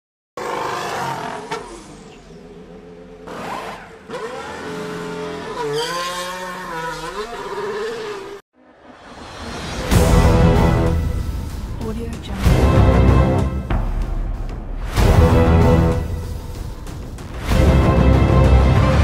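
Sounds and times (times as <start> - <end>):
race car engines revving: 0.4 - 8.4.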